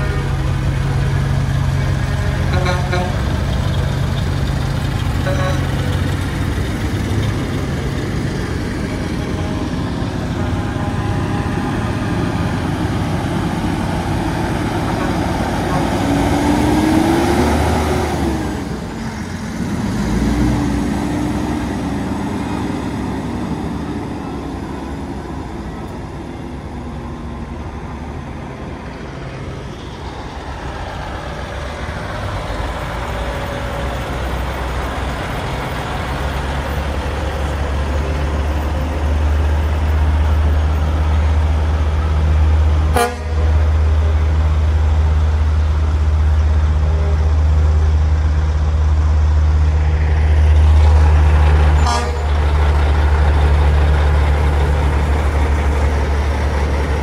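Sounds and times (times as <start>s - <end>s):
diesel engines rumbling: 0.0s - 57.0s
air horns tooting: 2.5s - 3.2s, 5.2s - 5.7s, 42.9s - 43.6s, 51.8s - 52.4s.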